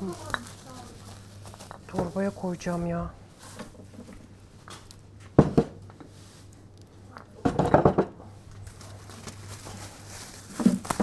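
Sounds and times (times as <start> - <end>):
plastic bag rustling: 0.0 - 5.0, 8.3 - 11.0.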